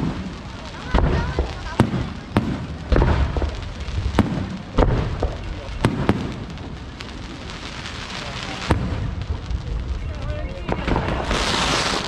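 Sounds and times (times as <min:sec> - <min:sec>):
steady noisy hiss: 0:00.0 - 0:12.0
fireworks shells bursting: 0:10.1 - 0:12.0.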